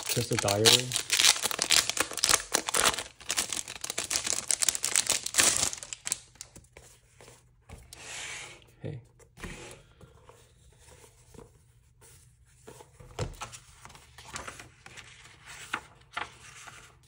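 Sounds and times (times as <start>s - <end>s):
paper rustling: 0.0s - 7.8s, 10.2s - 17.0s.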